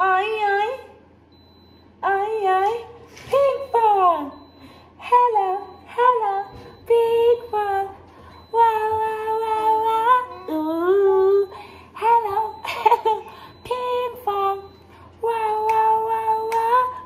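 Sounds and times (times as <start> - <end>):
woman and child singing: 5.0 - 17.0.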